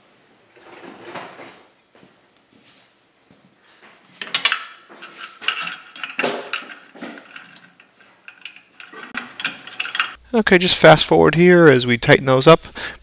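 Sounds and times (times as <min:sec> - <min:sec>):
wrench clinking and scraping metal: 0:04.1 - 0:10.2.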